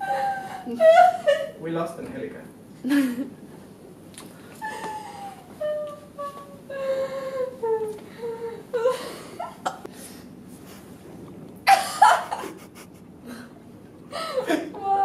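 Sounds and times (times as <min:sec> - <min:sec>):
woman laughing: 0:00.0 - 0:01.6, 0:02.8 - 0:03.4, 0:11.7 - 0:13.4, 0:14.1 - 0:15.0
breathy chuckles: 0:11.7 - 0:13.5.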